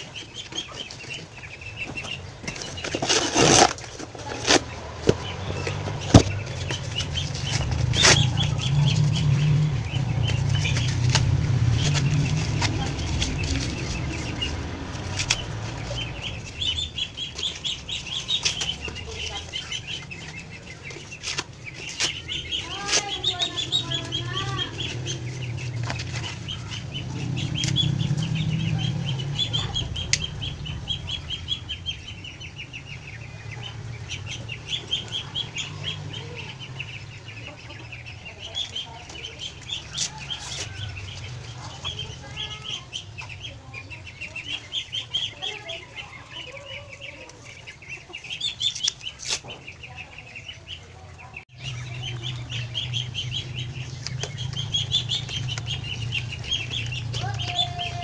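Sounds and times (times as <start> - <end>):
birds chirping: 0.0 - 58.0
chickens clucking: 0.0 - 58.0
low rumble: 4.6 - 48.7, 50.5 - 58.0.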